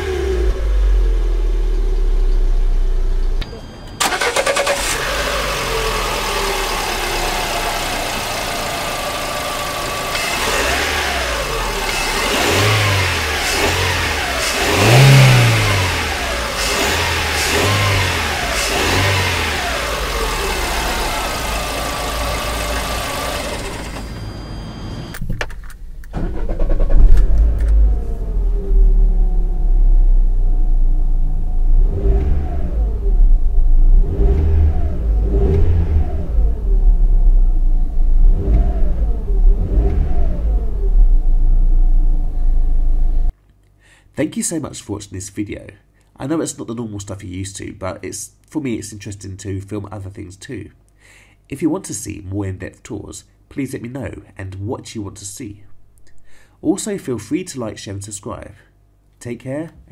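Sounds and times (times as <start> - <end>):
car engine revving: 0.0 - 25.1, 26.0 - 43.3.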